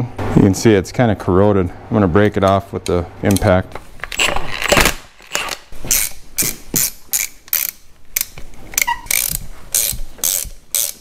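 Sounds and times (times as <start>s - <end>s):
hand ratchet clicking: 5.3s - 11.0s.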